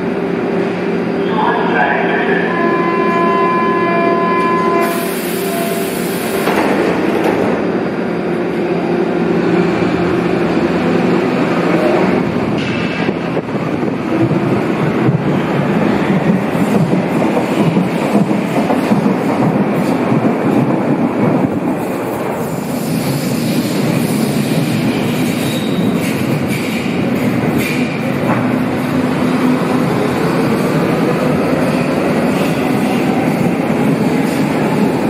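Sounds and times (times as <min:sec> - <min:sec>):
underground train running: 0:00.0 - 0:35.0
train hiss: 0:04.8 - 0:06.6.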